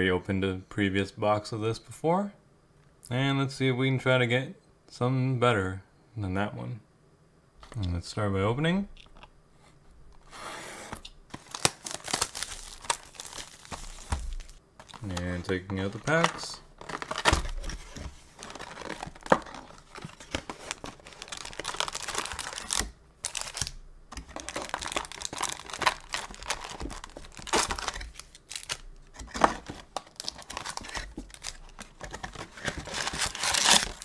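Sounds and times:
cardboard crackles and scrapes: 10.2s - 23.5s, 24.2s - 34.0s
card packs crinkling and rustling: 11.3s - 34.0s.

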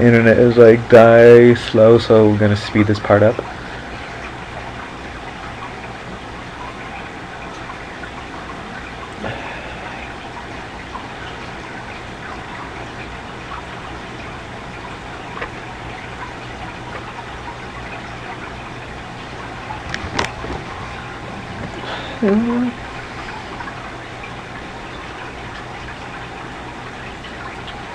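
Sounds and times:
low electrical hum: 0.0s - 27.9s.

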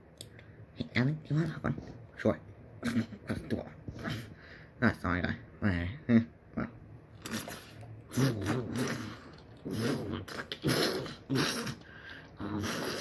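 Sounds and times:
person making buzzing mouth sounds: 2.8s - 4.3s, 6.1s - 13.0s.

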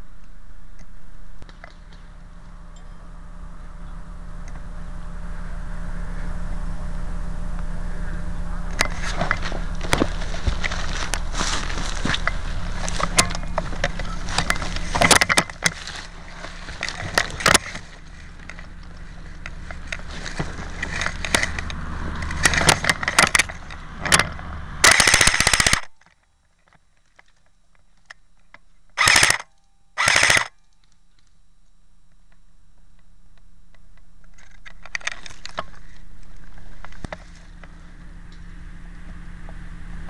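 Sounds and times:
airsoft rifle shots: 24.8s - 25.9s, 29.0s - 30.5s
rifle clicks: 24.8s - 25.9s, 29.0s - 30.6s.

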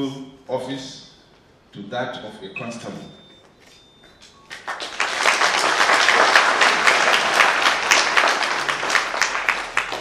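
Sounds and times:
audience applauding: 4.5s - 10.0s.

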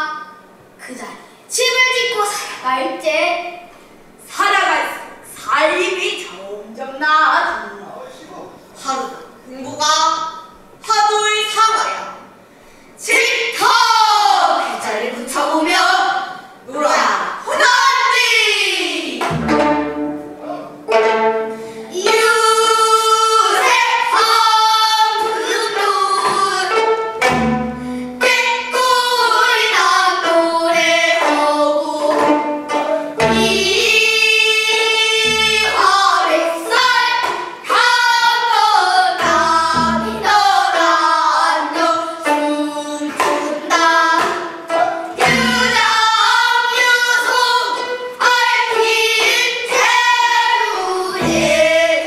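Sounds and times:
girls singing: 13.0s - 52.0s
plucked zither: 19.2s - 22.2s, 26.2s - 28.8s, 30.2s - 34.1s, 35.2s - 36.4s, 39.2s - 40.9s, 43.1s - 46.2s, 51.2s - 52.0s.

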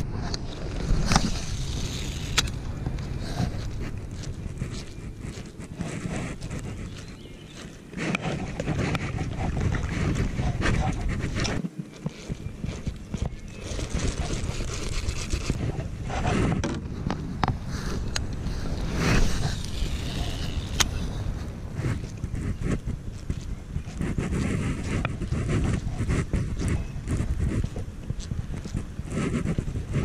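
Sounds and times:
water around kayak: 0.0s - 30.0s
wind: 0.0s - 30.0s
fishing reel clicks and knocks: 19.6s - 21.0s.

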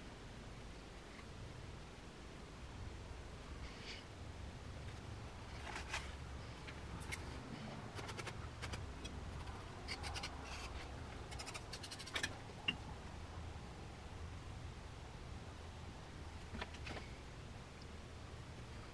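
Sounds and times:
low steady hum: 0.0s - 18.9s
tool scratching clay: 9.8s - 12.2s.

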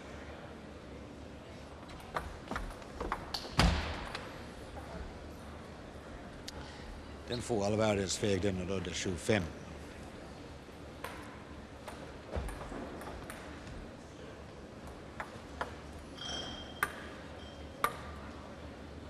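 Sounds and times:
sports hall hum: 0.0s - 19.0s
table tennis ball bouncing: 15.1s - 17.2s.

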